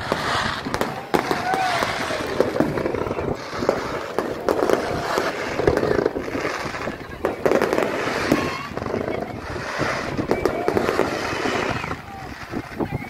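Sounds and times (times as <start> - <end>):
fireworks bangs and crackles: 0.0 - 13.0.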